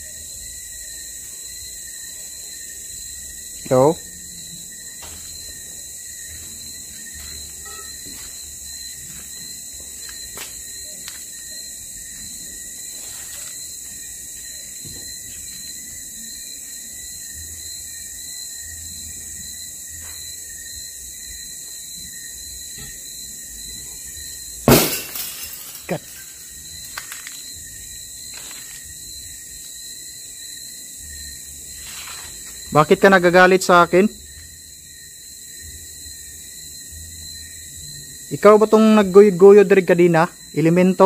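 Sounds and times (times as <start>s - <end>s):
high insect chirring: 0.0s - 41.0s
glass shattering: 24.7s - 26.3s
glass pieces scattering: 24.7s - 26.4s.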